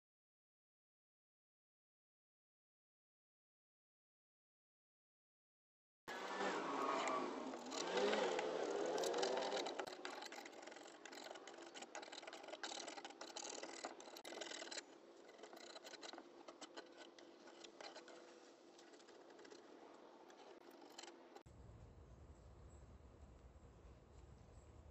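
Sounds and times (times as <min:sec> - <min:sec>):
metal scraper scraping paint: 0:06.1 - 0:21.5.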